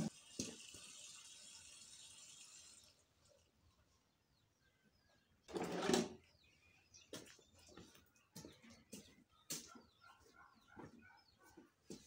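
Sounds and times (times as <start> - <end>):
footsteps: 7.1 - 12.0.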